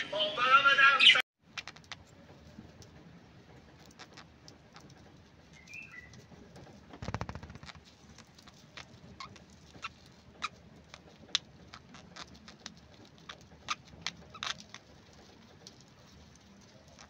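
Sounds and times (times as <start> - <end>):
budgerigars chirping and clicking: 8.4 - 14.8.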